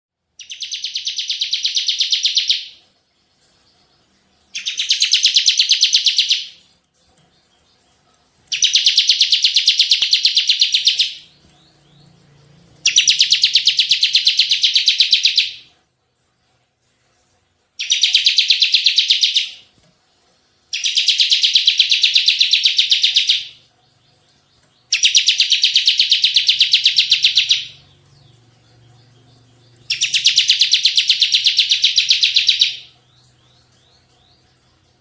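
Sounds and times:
bird singing fast trills: 0:00.4 - 0:02.8, 0:04.5 - 0:06.6, 0:08.5 - 0:15.7, 0:17.8 - 0:19.7, 0:20.7 - 0:35.0.

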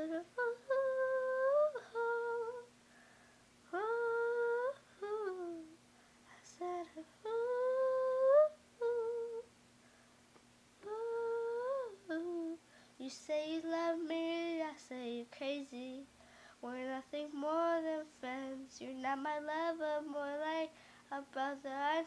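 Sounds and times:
girl humming a melody: 0:00.0 - 0:02.7, 0:03.7 - 0:05.8, 0:06.4 - 0:09.5, 0:10.8 - 0:15.1.

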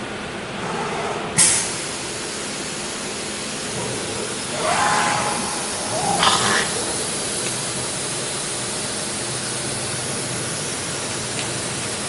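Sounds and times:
cnc router hissing: 0:04.0 - 0:08.2.

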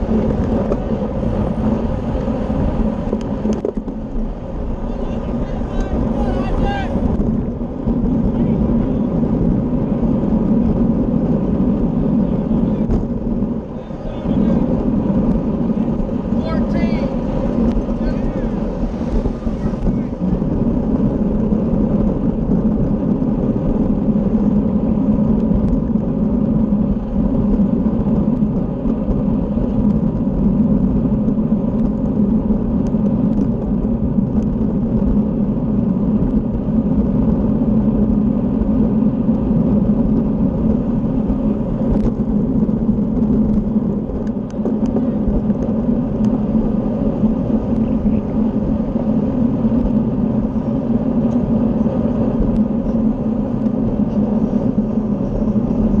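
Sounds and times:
bicycle tyre noise: 0:00.0 - 0:56.0
wind on microphone: 0:00.0 - 0:56.0.

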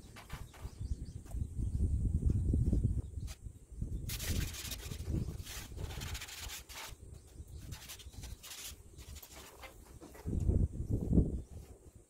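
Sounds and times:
cloth rag scraping on siding: 0:04.1 - 0:07.0, 0:07.6 - 0:10.3.

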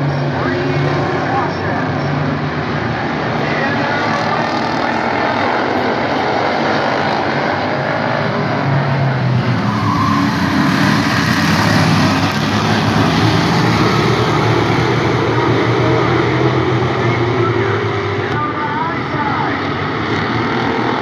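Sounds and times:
race car engines droning: 0:00.0 - 0:21.0.

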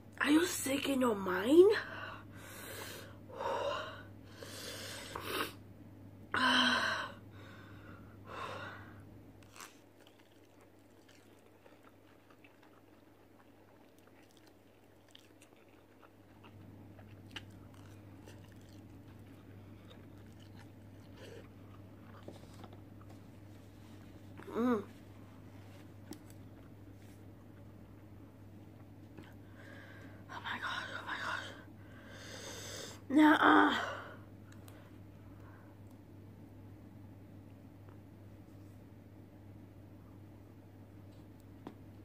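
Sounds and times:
chewing and slurping noodles: 0:09.4 - 0:23.4.

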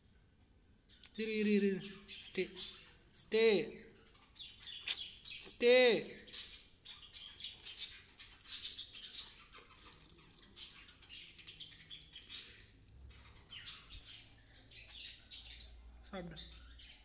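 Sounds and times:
small birds chirping: 0:00.0 - 0:17.0
milk pouring into bowl: 0:02.9 - 0:03.2, 0:07.8 - 0:13.2.

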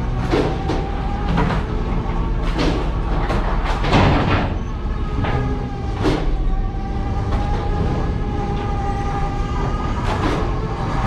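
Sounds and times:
boat engine rumble and hum: 0:00.0 - 0:11.0.

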